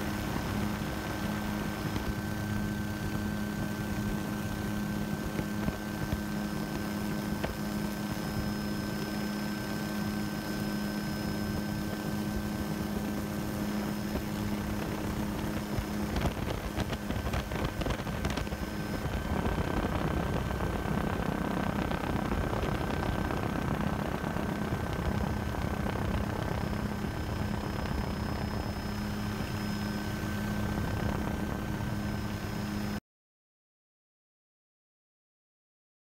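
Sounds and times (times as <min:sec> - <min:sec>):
helicopter engine and rotor drone: 0:00.0 - 0:33.0
high whine: 0:00.0 - 0:33.0
wind noise: 0:11.4 - 0:32.1.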